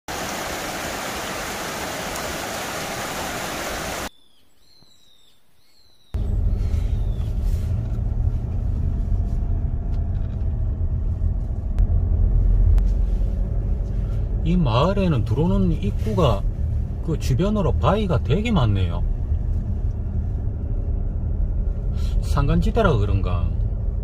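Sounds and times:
stream rushing over rocks: 0.1s - 4.1s
car driving rumble: 6.2s - 24.0s.

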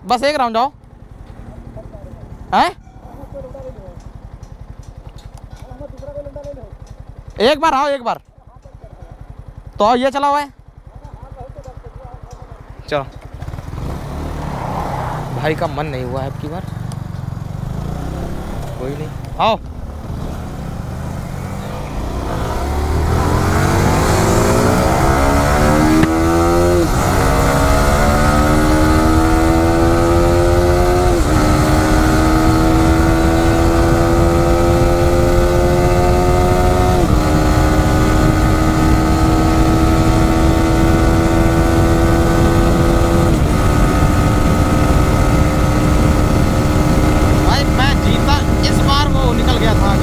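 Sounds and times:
motorcycle engine accelerating: 0.0s - 50.0s
low wind rumble: 10.5s - 50.0s.

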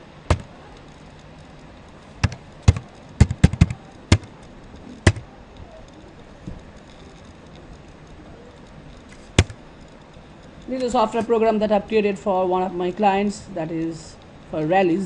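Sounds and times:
keyboard keys clicking: 0.3s - 0.5s, 2.2s - 5.3s.

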